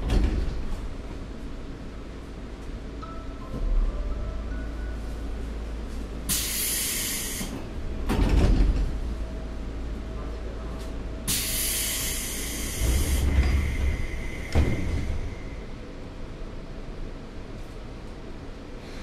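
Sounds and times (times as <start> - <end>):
low equipment hum: 0.0 - 19.0
compressed air hissing: 6.3 - 7.6, 11.3 - 15.7
heavy thud: 12.8 - 15.4.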